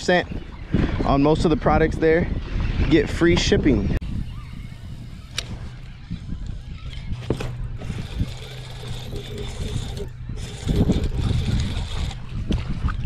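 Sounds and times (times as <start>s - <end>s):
spinning reel being cranked: 4.1s - 12.3s.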